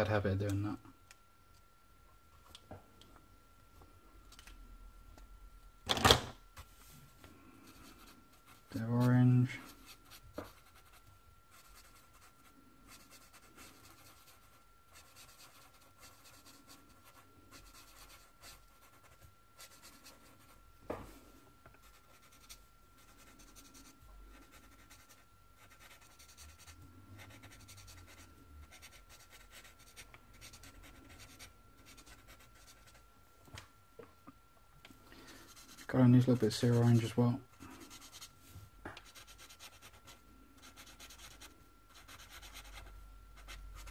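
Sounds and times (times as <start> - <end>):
marker scratching on paper: 9.7 - 20.6, 21.8 - 33.0, 37.7 - 38.3, 39.0 - 43.9.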